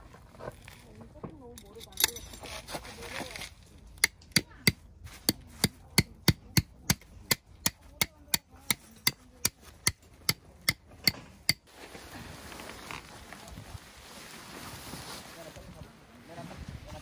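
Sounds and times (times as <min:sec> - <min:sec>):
hammer striking tent peg: 0:04.0 - 0:11.6.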